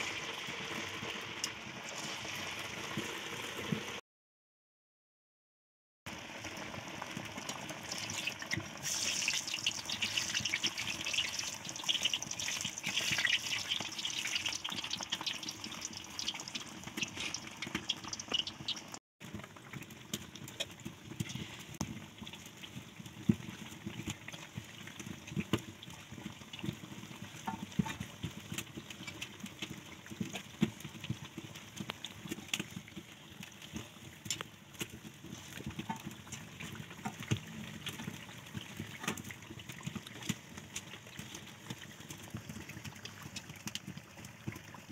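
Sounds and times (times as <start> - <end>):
food sizzling in hot oil: 0.0 - 4.0, 6.1 - 31.9.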